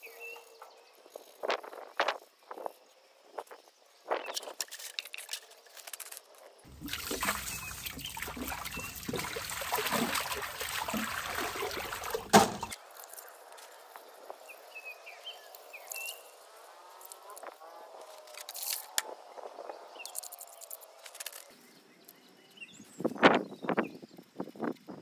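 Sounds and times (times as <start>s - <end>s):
hand rubbing a ceramic sink: 6.7s - 12.8s
water splashing into a sink: 6.7s - 12.8s.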